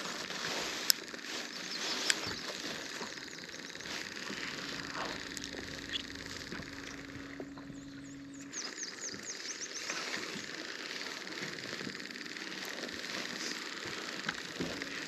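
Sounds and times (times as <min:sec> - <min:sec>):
steady low hum: 0:00.0 - 0:15.0
bird chirping: 0:01.3 - 0:10.6.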